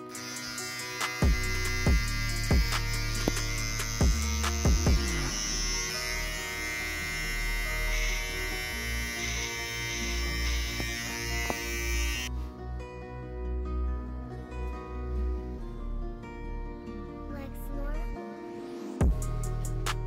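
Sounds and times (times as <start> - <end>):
electric hair clipper buzzing: 0.0 - 12.3
background music: 0.0 - 20.0.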